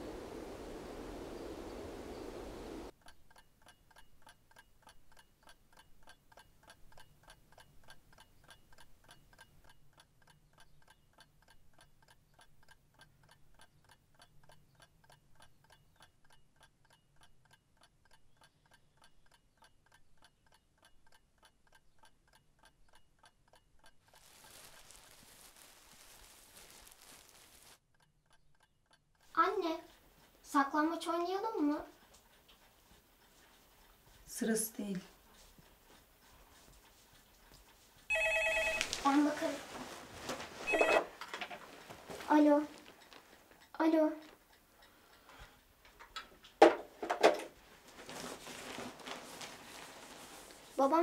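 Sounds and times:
rustle of outdoor air: 0.0 - 2.9, 24.2 - 27.8
wall clock ticking: 2.9 - 24.2, 27.8 - 51.0.

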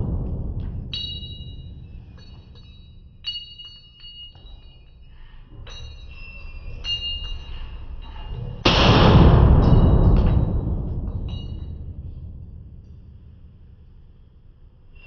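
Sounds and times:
low steady rumble: 0.0 - 4.2, 6.8 - 15.0
sharp metallic clinks: 0.8 - 8.8, 9.6 - 13.5.

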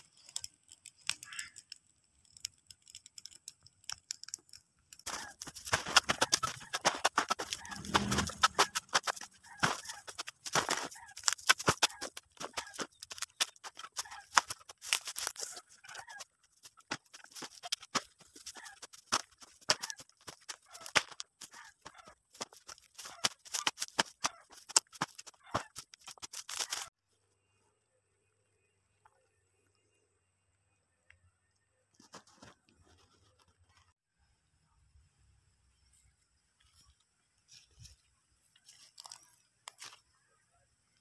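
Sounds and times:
fire crackling: 0.0 - 27.0
shovel scraping dirt: 5.0 - 26.9.

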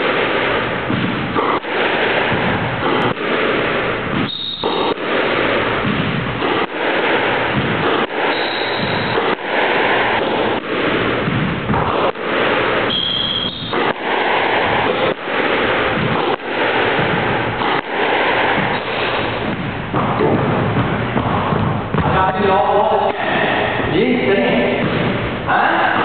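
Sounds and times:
squash ball hits: 0.0 - 25.5
high shoe squeak: 4.2 - 4.9, 8.3 - 9.2, 12.9 - 13.8.

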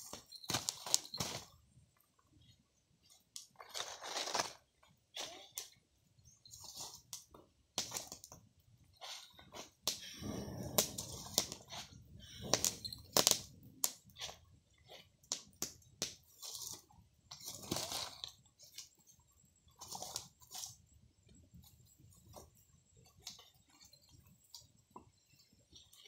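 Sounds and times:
wood fire crackling: 0.0 - 4.9, 5.6 - 20.9
stick prodding burning wood: 0.0 - 26.0
rustling scrape: 3.1 - 4.6, 8.9 - 15.2.

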